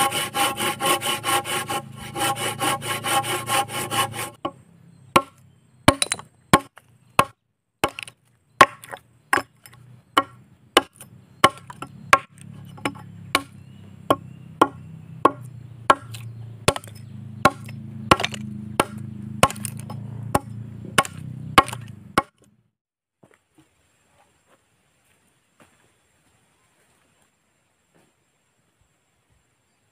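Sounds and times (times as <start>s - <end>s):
blade chopping into wooden log: 5.2s - 22.5s.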